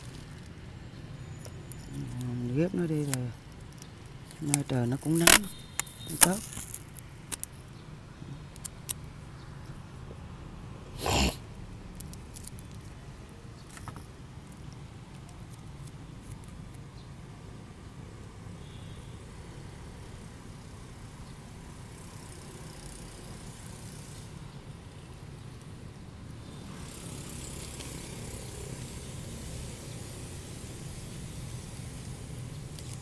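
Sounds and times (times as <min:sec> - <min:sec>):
plastic tape crinkling: 0:01.4 - 0:07.6, 0:11.9 - 0:13.0, 0:32.6 - 0:33.0.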